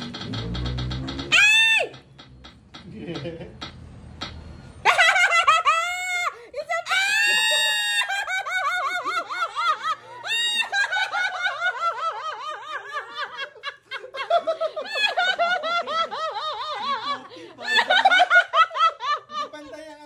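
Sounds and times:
people laughing: 0:02.8 - 0:03.6, 0:04.8 - 0:20.0.

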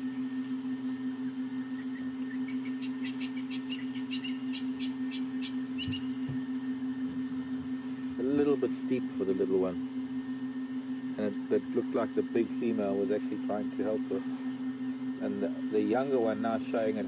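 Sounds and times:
steady low hum: 0:00.0 - 0:17.0
bird calling high notes: 0:01.7 - 0:06.3.

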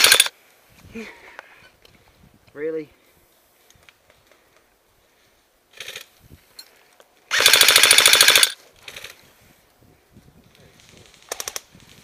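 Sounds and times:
airsoft gun rapid fire: 0:00.0 - 0:00.3, 0:07.3 - 0:08.6
faint rustles and clicks: 0:00.4 - 0:07.3.

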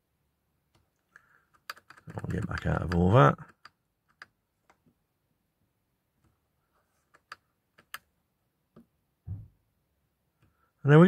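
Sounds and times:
soft low thump: 0:09.2 - 0:09.7.

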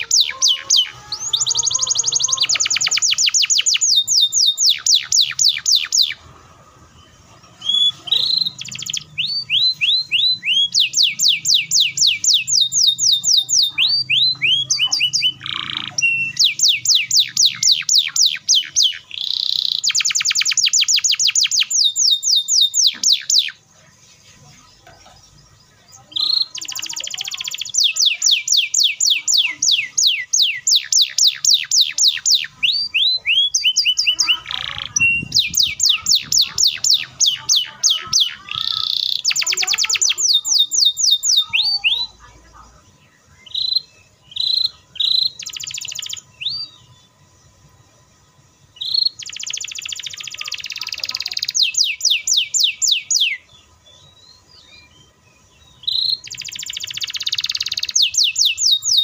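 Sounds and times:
canary singing: 0:00.0 - 0:59.0.

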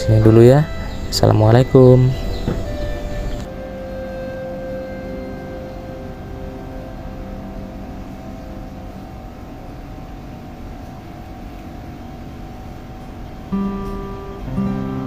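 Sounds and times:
steady held tone: 0:00.0 - 0:15.0
plucked acoustic guitar note: 0:13.5 - 0:15.0.

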